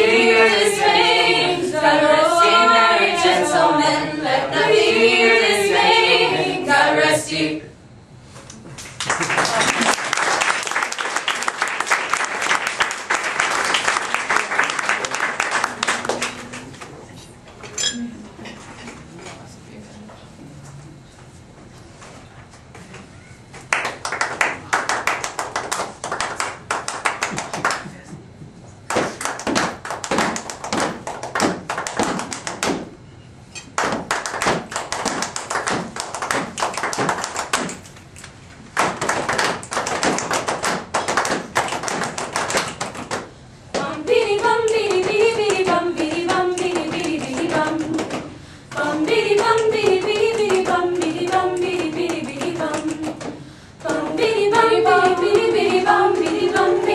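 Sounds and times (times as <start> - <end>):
group singing falling melody: 0.0 - 7.8, 43.7 - 56.9
hand claps and taps: 28.9 - 32.9, 33.8 - 37.8.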